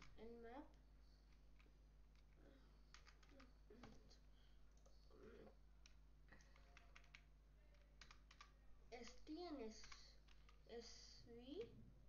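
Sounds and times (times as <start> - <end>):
keyboard keystrokes: 5.8 - 8.5.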